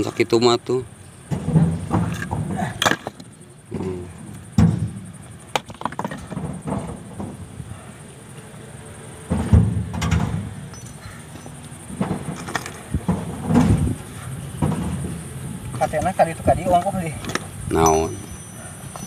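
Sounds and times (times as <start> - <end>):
heavy thud: 1.3 - 2.8, 4.4 - 7.8, 9.2 - 11.2, 11.8 - 15.3
rocks knocking and clacking: 4.5 - 7.4.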